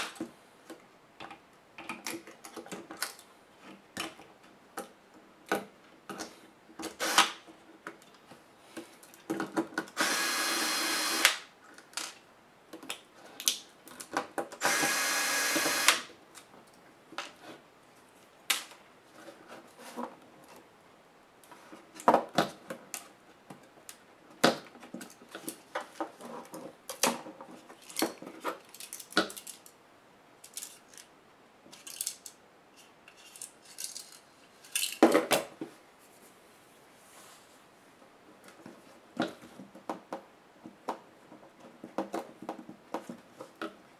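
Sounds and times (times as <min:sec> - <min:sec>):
electric screwdriver running: 0:07.0 - 0:07.3, 0:10.0 - 0:11.4, 0:14.6 - 0:16.0
small metal parts clicking: 0:28.6 - 0:29.8, 0:30.4 - 0:31.1, 0:31.7 - 0:35.0.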